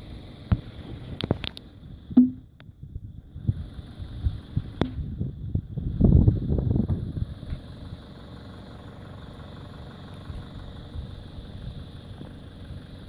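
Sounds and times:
vehicle engine low rumble: 0.0s - 13.0s
loud low knocks and thumps: 2.1s - 2.5s.

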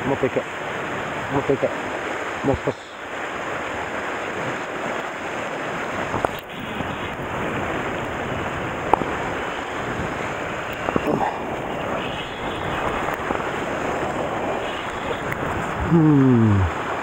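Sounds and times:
surf washing against rocks: 0.0s - 17.0s
wind on microphone: 3.4s - 17.0s.

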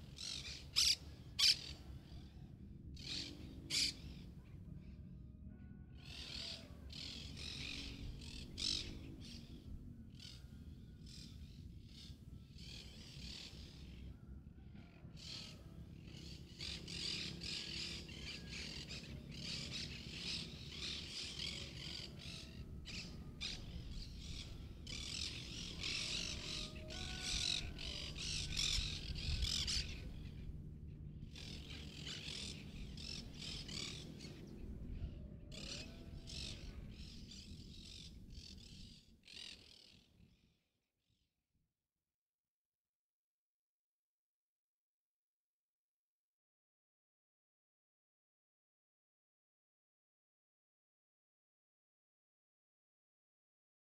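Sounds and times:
birds chirping and calling: 0.0s - 4.8s, 6.0s - 14.2s, 14.8s - 40.1s.

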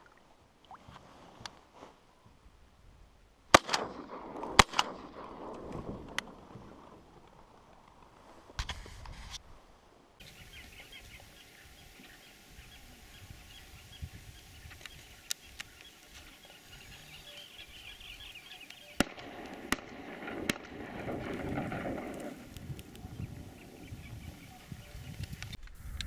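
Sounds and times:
shotgun shots: 3.5s - 6.0s, 18.9s - 22.4s
sharp cracks: 3.5s - 8.9s, 18.6s - 23.7s
faint high bird chatter: 10.2s - 19.1s, 22.9s - 25.6s.

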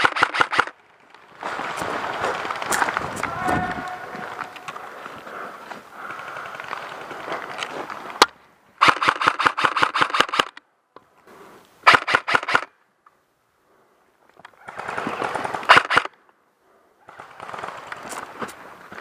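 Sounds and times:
airsoft rifle firing bursts: 0.0s - 0.7s, 8.8s - 10.6s, 11.8s - 12.7s, 14.6s - 16.1s
rustling: 0.8s - 8.2s.

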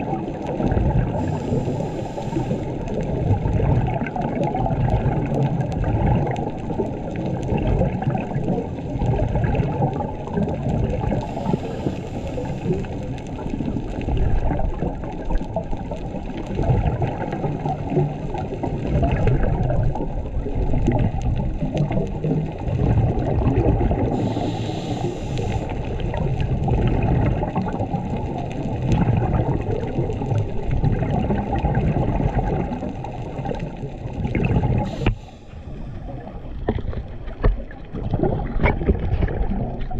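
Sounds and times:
underwater bubbles gurgling: 0.0s - 39.9s
brief hisses: 34.9s - 35.6s.

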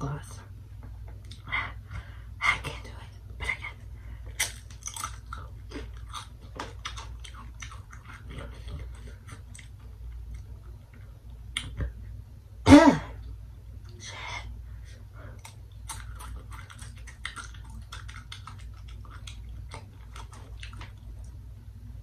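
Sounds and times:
tortilla chips crunching: 4.3s - 10.4s, 15.4s - 21.1s.

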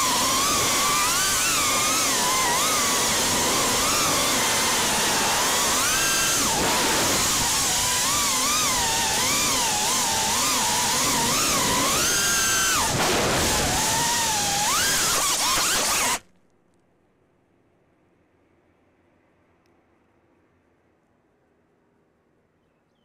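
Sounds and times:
quadcopter motors whining: 0.0s - 16.2s.

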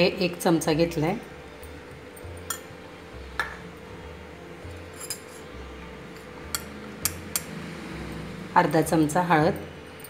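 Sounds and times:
spoon clinking on steel bowls: 1.6s - 2.8s, 4.7s - 8.3s.

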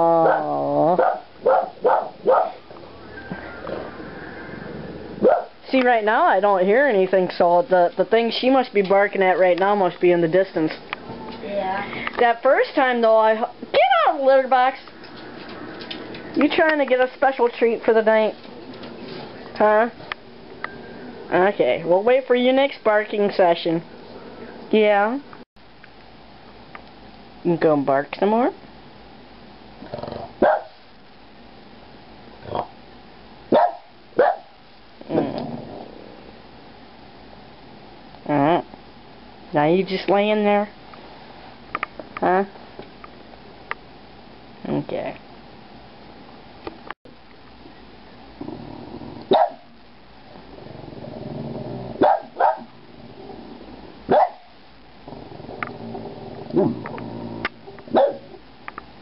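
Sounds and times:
dog growling: 0.0s - 1.2s, 29.8s - 30.4s, 32.4s - 32.8s, 35.0s - 36.4s, 48.4s - 49.4s, 50.4s - 53.9s, 55.0s - 58.4s
dog barking: 0.2s - 2.6s, 5.2s - 5.6s, 30.4s - 30.8s, 33.5s - 34.6s, 49.3s - 49.7s, 52.0s - 52.7s, 54.1s - 54.5s, 57.9s - 58.4s.

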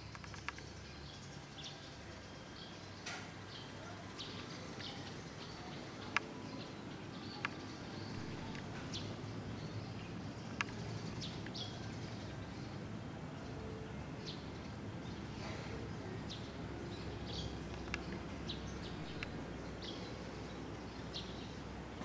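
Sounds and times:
sharp clicks: 0.0s - 0.7s, 10.4s - 11.6s, 18.9s - 19.5s
small birds chirping: 0.0s - 22.0s
low steady rumble: 8.0s - 15.4s, 16.0s - 22.0s.

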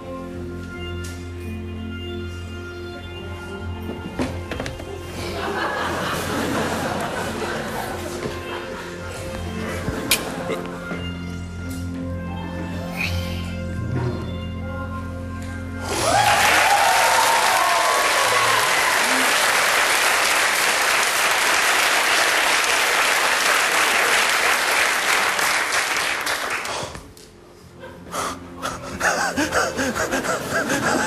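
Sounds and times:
audience applauding and cheering: 15.8s - 27.0s.

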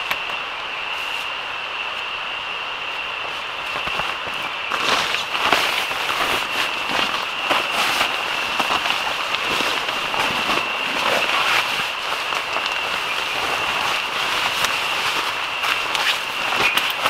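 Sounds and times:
rain pattering on a tent: 2.9s - 17.0s.

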